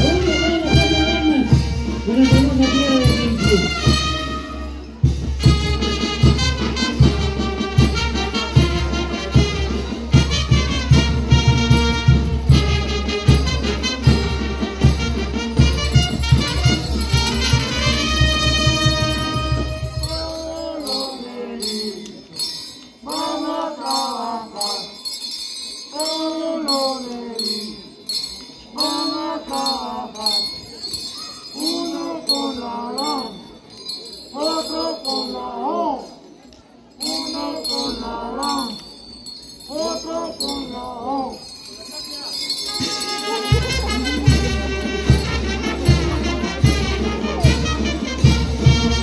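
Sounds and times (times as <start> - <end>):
high folk melody: 0.0 - 21.5, 39.4 - 49.0
jingle bells shaken: 0.0 - 49.0.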